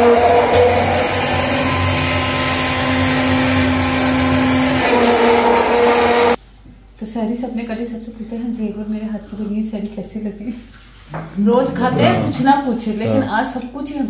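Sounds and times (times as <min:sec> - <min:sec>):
electric blender running: 0:00.0 - 0:06.4.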